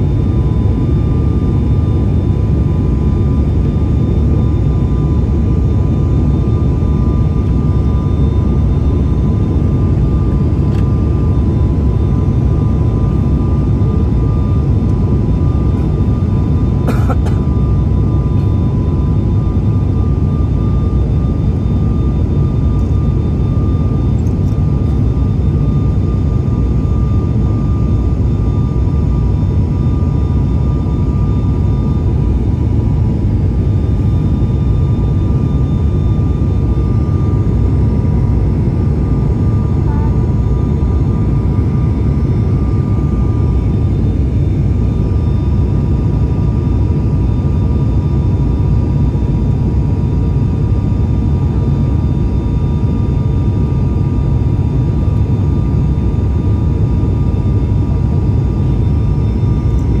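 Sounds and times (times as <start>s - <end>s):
airliner cabin engine drone: 0.0s - 60.0s.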